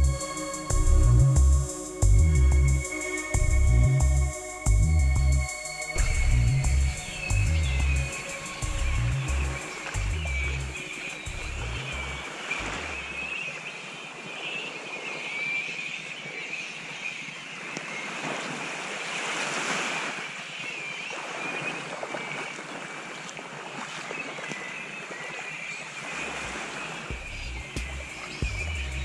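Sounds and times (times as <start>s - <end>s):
high-pitched chorus: 0.0s - 13.1s
rushing surf or wind: 4.3s - 24.0s.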